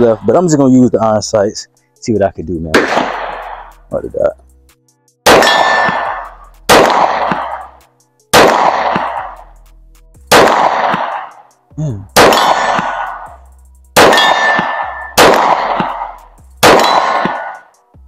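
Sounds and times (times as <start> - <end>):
handgun shots echoing: 2.7 - 3.7, 5.2 - 7.7, 8.3 - 9.4, 10.3 - 11.4, 12.2 - 13.3, 14.0 - 17.7.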